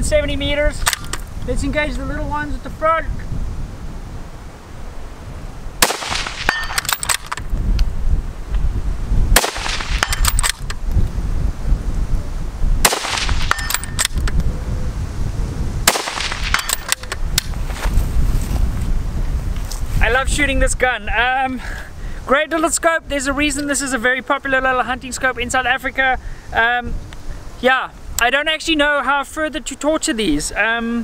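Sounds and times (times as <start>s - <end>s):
wind rumble on microphone: 0.0s - 29.4s
rifle bolt clicks: 0.8s - 1.3s, 5.8s - 7.5s, 9.4s - 10.8s, 12.9s - 14.4s, 15.9s - 17.5s
rifle shots: 5.8s - 7.4s, 9.4s - 10.7s, 12.8s - 14.2s, 15.8s - 17.2s.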